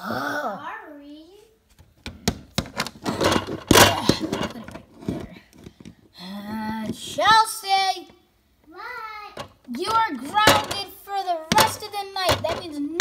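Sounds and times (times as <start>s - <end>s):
handling rustling and knocks: 1.7s - 7.4s, 9.3s - 13.0s
child's wordless voice: 6.2s - 13.0s.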